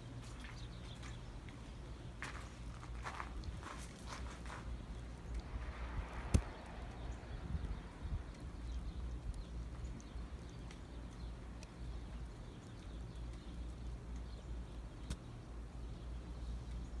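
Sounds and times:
low wind rumble on microphone: 0.0s - 17.0s
light ticks and taps of snow: 8.3s - 14.4s, 15.0s - 15.3s.

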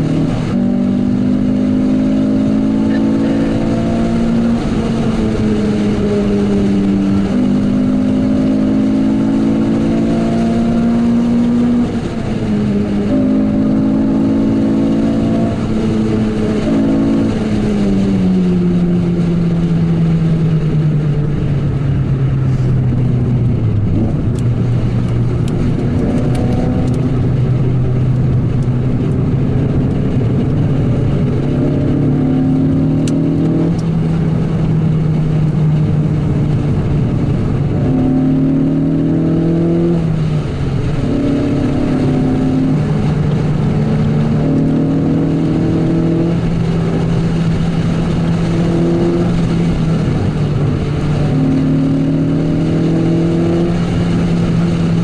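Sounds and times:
car engine revving: 0.0s - 55.0s
road noise: 0.0s - 55.0s.

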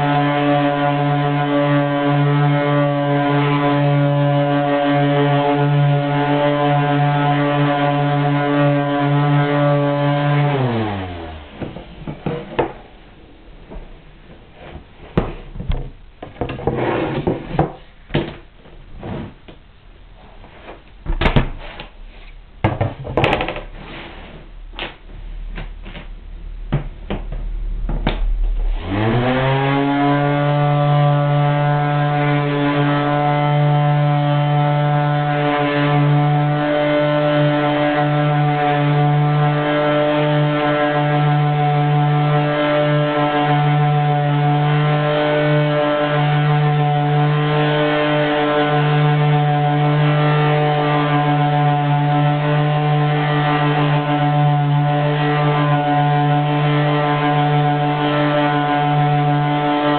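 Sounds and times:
orbital sander humming: 0.0s - 11.8s, 27.5s - 59.9s.

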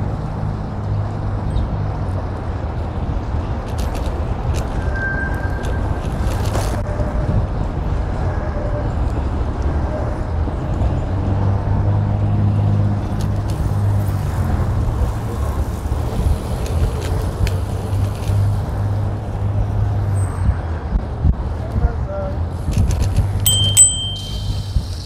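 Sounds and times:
wind rushing over microphone: 0.0s - 25.0s
bicycle tyre noise: 13.1s - 20.4s.

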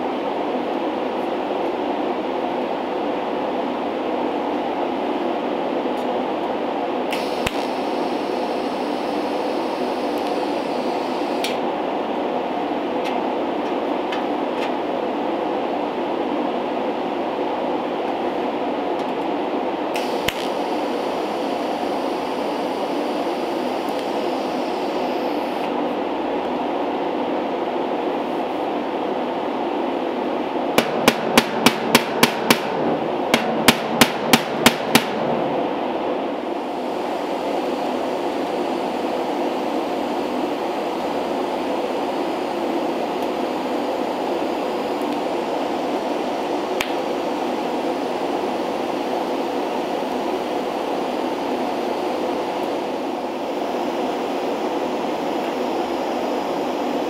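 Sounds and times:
steady machine drone: 0.0s - 57.0s
click: 7.1s - 7.7s, 10.2s - 10.4s, 11.4s - 11.6s, 20.0s - 20.5s, 23.9s - 24.1s, 46.8s - 47.0s.

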